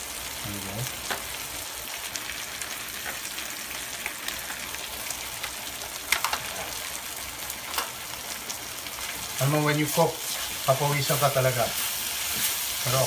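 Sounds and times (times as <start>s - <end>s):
stir-fry sizzling in wok: 0.0s - 13.0s.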